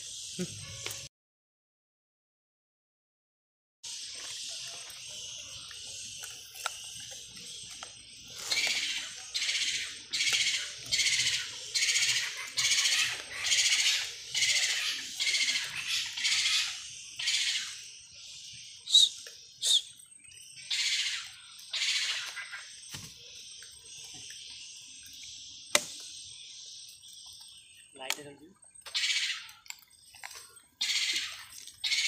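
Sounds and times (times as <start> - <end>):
high buzzy animal calls: 0.0 - 1.1, 4.0 - 25.0, 28.8 - 30.0, 30.7 - 32.0.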